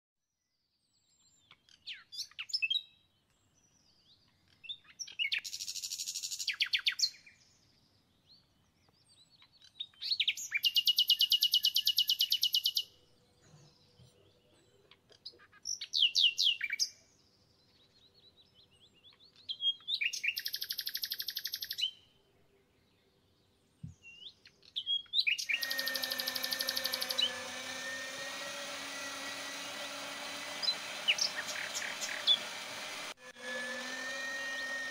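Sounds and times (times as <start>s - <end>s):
songbird singing: 0.8s - 27.3s, 30.6s - 32.4s
electric meat grinder humming: 25.6s - 34.9s.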